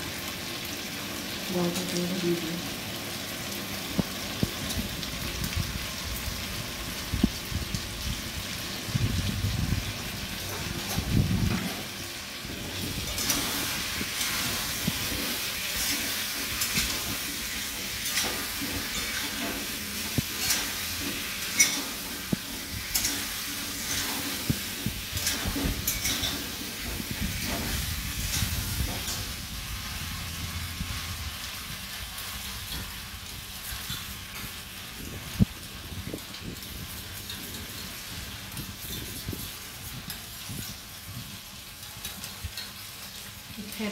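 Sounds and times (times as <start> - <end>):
potatoes sizzling in a pan: 0.0 - 43.9
metal spatula scraping a pan: 12.6 - 30.0.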